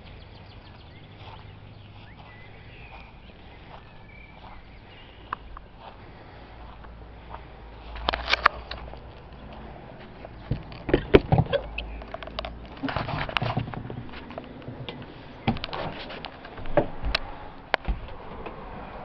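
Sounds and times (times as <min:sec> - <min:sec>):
footsteps in a caravan: 0:00.1 - 0:18.7.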